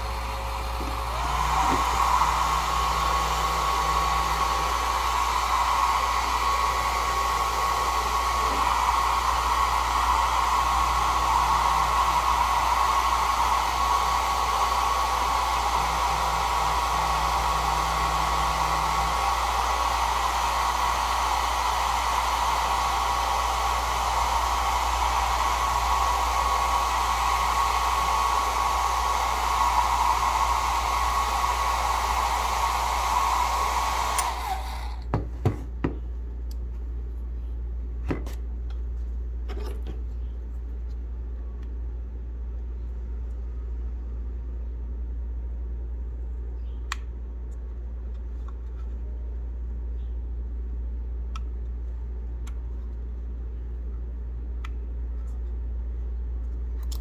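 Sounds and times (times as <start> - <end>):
hair dryer running: 0.0 - 35.1.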